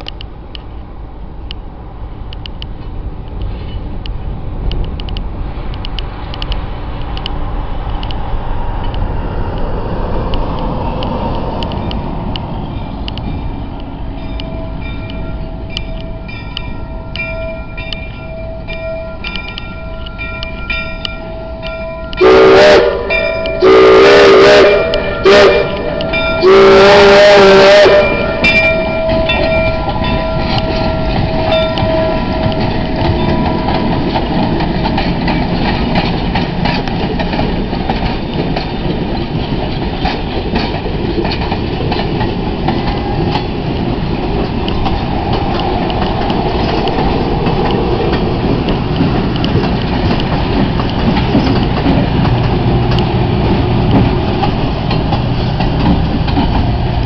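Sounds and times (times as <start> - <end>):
steam locomotive rumble: 0.0 - 57.0
steam locomotive whistle: 21.2 - 33.9.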